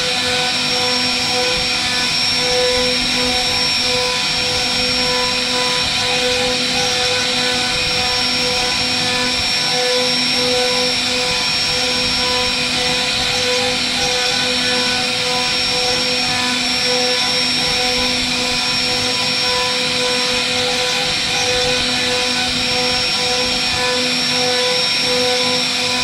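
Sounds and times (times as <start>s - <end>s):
router spindle whining: 0.0s - 26.0s.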